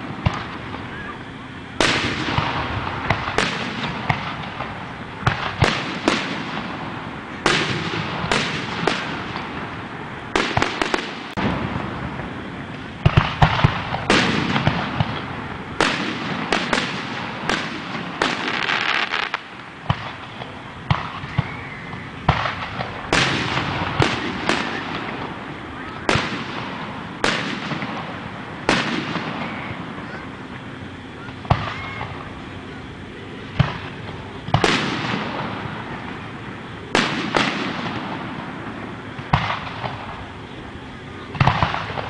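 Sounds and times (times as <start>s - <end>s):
fireworks bangs: 0.0s - 42.0s
fireworks crackling and hissing: 0.0s - 42.0s.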